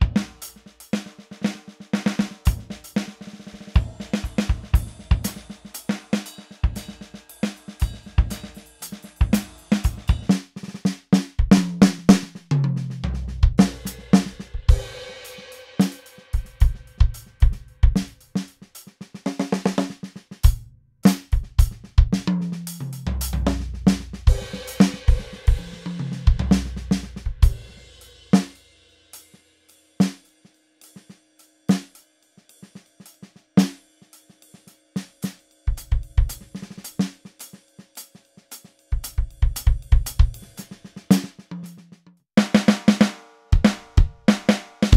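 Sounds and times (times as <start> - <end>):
electronic drum kit: 0.0 - 1.1, 2.0 - 27.8, 35.7 - 37.0, 38.9 - 41.8, 43.6 - 44.9.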